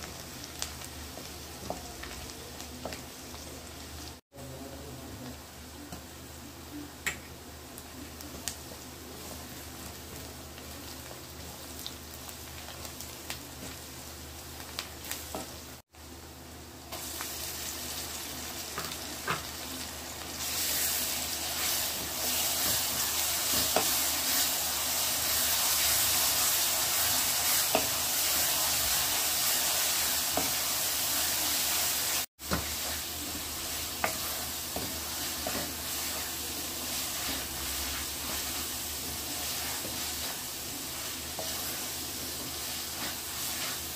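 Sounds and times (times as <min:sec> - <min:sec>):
onions frying in oil: 0:00.0 - 0:43.9
wooden spatula scraping a pan: 0:32.4 - 0:43.9.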